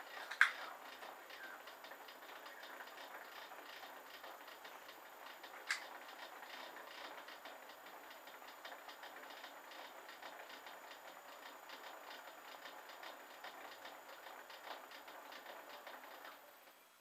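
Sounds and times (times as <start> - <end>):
lathe gears clicking rapidly: 0.0 - 16.8
faint motor hiss: 0.0 - 17.0
sharp click: 0.3 - 1.0, 5.6 - 5.9.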